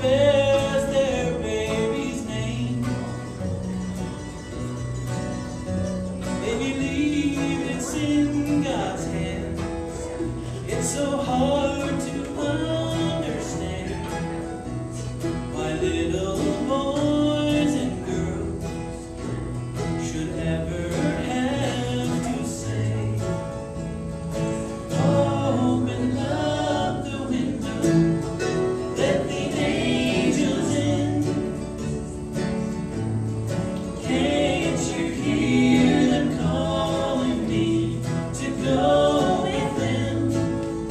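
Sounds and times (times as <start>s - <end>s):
acoustic guitars: 0.0s - 40.9s
banjo: 0.0s - 40.9s
mandolin: 0.0s - 40.9s
voices singing: 0.0s - 40.9s
fiddle: 1.2s - 16.3s.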